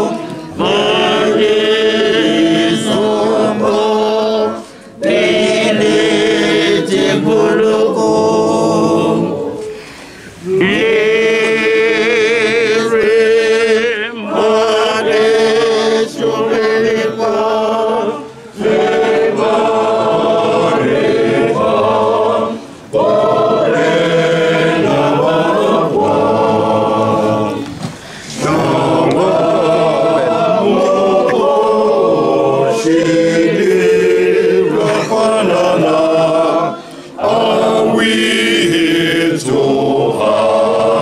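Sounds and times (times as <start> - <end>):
male choir singing a hymn: 0.0 - 41.0.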